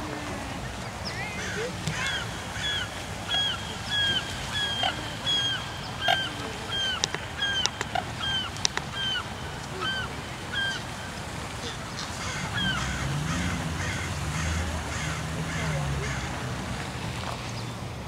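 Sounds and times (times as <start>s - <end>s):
waterfowl honking: 1.2s - 11.0s, 11.6s - 16.4s.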